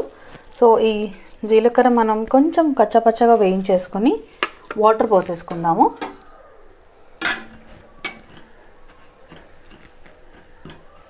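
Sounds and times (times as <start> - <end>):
metal spatula scraping a pan: 0.9 - 1.6, 7.2 - 11.0.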